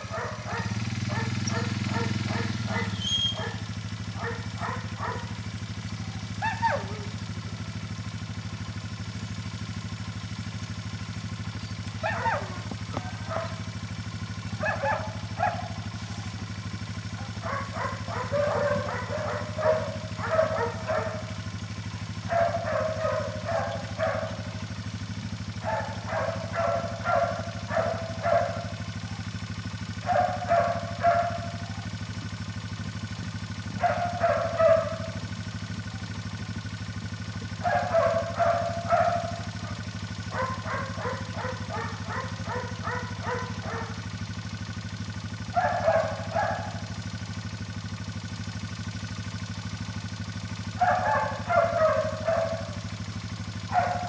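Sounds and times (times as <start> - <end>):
atv engine idling: 0.0 - 54.0
puppy yelping and whining: 2.7 - 3.6.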